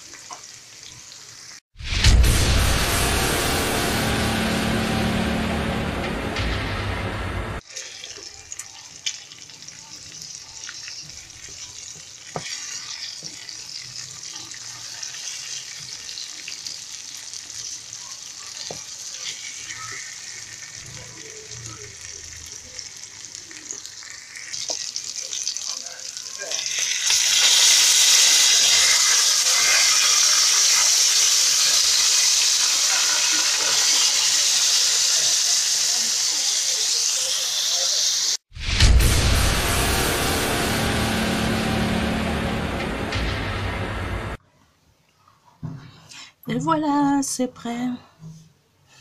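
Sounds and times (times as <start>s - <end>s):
meat sizzling in hot oil: 0.0s - 1.8s, 7.6s - 38.6s
loud steam hiss: 1.8s - 7.6s, 27.1s - 44.4s.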